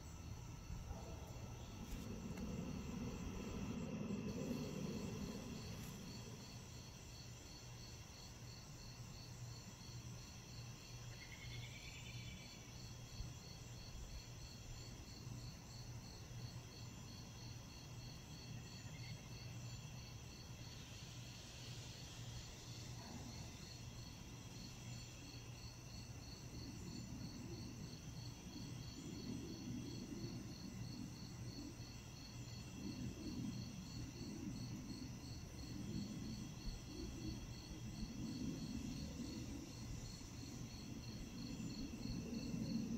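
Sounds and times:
crickets chirping: 0.0 - 42.9
insects trilling: 0.0 - 42.9
low rumble: 0.3 - 6.8.

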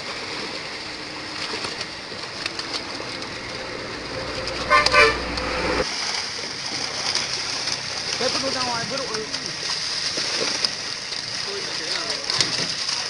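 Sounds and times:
fish splashing in water: 0.0 - 13.0
short two-pulse toot: 4.1 - 5.8.

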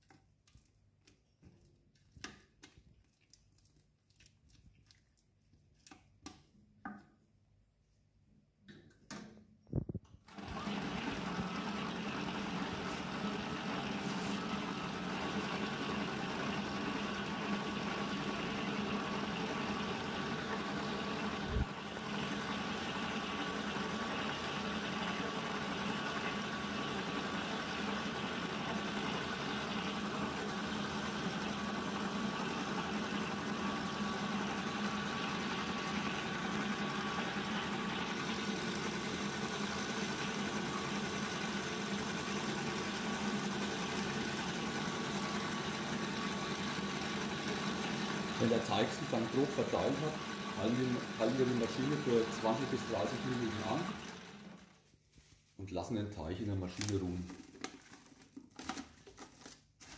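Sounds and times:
dough mixer motor humming: 10.2 - 54.8.

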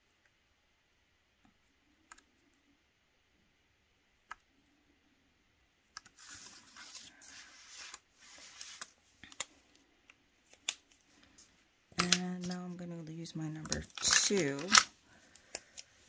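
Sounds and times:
art supplies rustling on table: 6.0 - 16.0.

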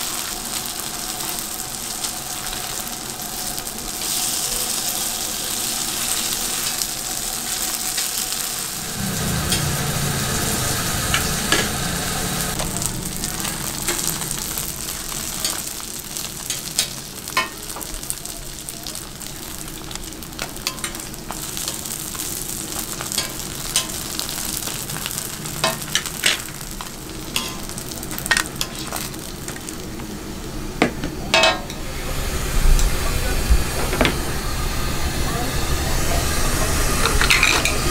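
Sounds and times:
dumplings sizzling in oil: 0.0 - 37.9.

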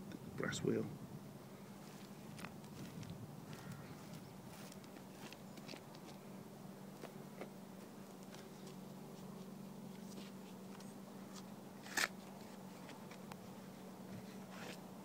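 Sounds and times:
soft clicks and rustles of soil: 1.8 - 6.3, 6.9 - 13.5.

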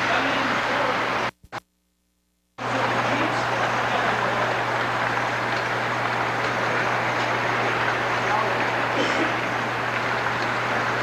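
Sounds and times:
model train wheels rumbling on rail: 2.6 - 11.0.

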